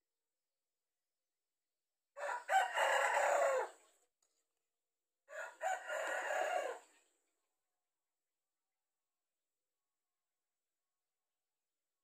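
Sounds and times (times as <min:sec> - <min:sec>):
rooster crowing: 0:02.2 - 0:03.8, 0:05.3 - 0:06.9.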